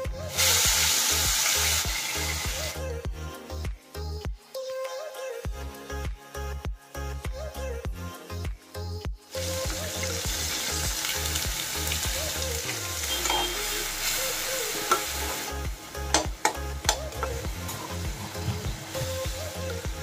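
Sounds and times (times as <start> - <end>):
food sizzling in hot oil: 0.2 - 2.8, 9.3 - 20.0
spoon knocking against pan: 16.1 - 17.4.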